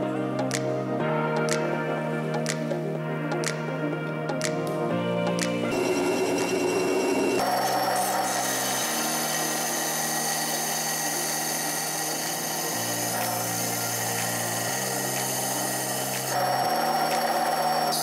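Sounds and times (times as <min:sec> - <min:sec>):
disc sander motor hum: 0:05.7 - 0:18.0
wood being sanded: 0:07.6 - 0:17.9.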